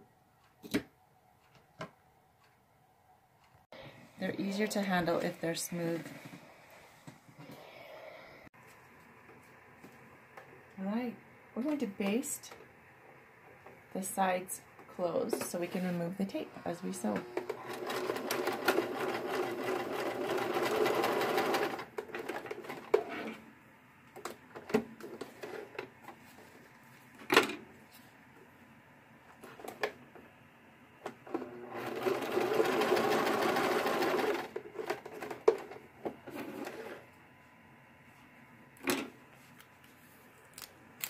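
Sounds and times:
sewing machine stitching: 0:17.3 - 0:23.3, 0:31.3 - 0:35.7.

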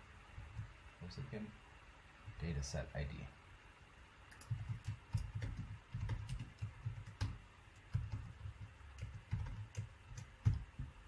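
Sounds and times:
typing on computer keyboard: 0:04.3 - 0:11.0.

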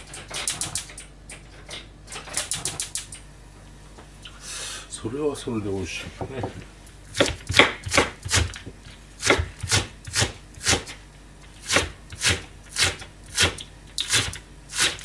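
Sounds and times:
knife chopping on cutting board: 0:06.4 - 0:10.9.

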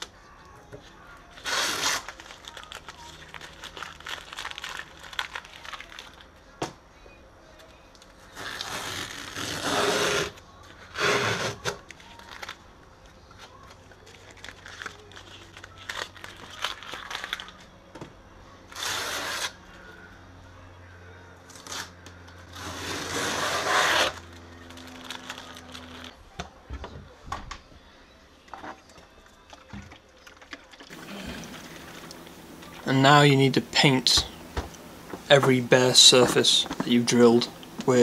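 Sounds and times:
tape rustling and scraping: 0:01.3 - 0:06.3, 0:07.6 - 0:12.6, 0:18.7 - 0:19.6, 0:21.5 - 0:26.2, 0:30.9 - 0:38.0
masking tape ripping off: 0:01.4 - 0:06.2, 0:08.4 - 0:12.6, 0:14.0 - 0:17.6, 0:18.7 - 0:19.6, 0:21.5 - 0:26.2.

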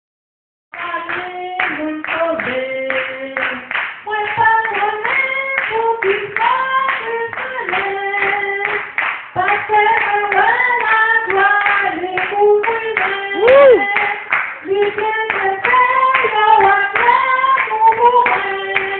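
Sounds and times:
handclaps: 0:00.8 - 0:18.9
woman singing gospel: 0:00.8 - 0:18.9.

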